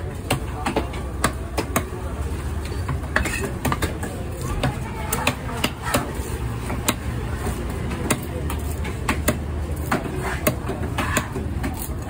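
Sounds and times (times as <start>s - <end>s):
cleaver chopping on wooden block: 0.2s - 1.9s, 7.9s - 11.9s.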